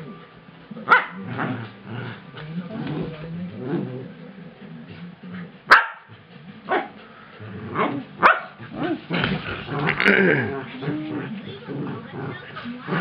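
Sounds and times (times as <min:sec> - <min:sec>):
dogs growling: 0:00.0 - 0:13.0
dogs barking sharply: 0:05.7 - 0:06.1, 0:08.2 - 0:08.6.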